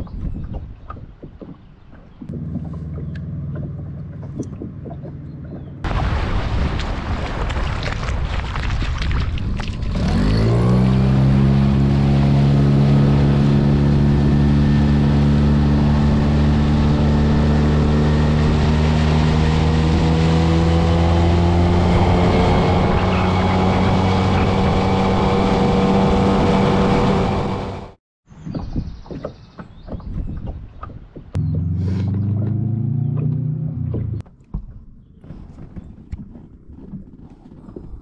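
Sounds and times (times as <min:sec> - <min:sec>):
outboard motor at high revs: 0:02.3 - 0:05.9, 0:09.6 - 0:28.0, 0:28.9 - 0:34.2.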